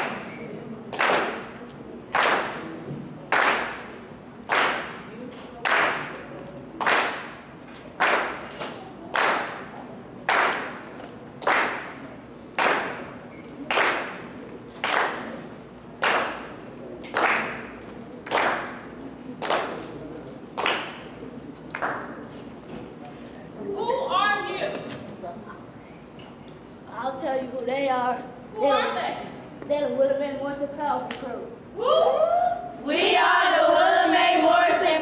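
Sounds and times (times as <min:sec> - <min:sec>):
sharp clap-like beat: 0:00.0 - 0:20.0, 0:20.6 - 0:22.2.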